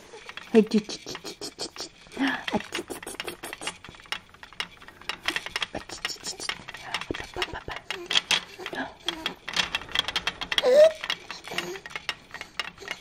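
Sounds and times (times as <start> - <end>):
plastic toys clicking and rattling: 0.0 - 13.0.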